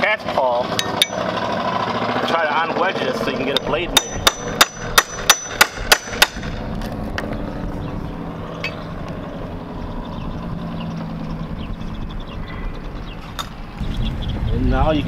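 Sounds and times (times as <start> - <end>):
steady low hum: 0.6 - 15.0
hammer striking metal nail puller: 0.8 - 1.2, 3.5 - 6.6.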